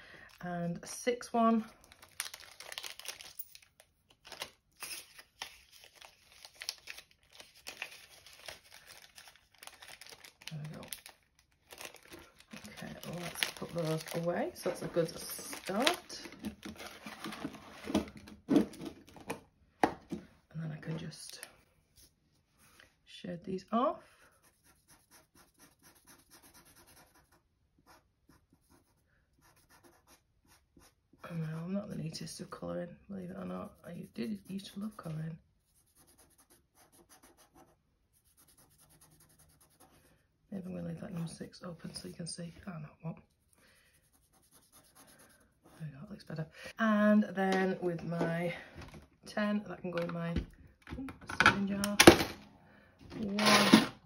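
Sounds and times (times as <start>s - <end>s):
plastic bag crinkling: 1.8s - 18.0s
marker scribbling on paper: 24.3s - 31.2s, 33.6s - 40.0s, 43.9s - 45.8s.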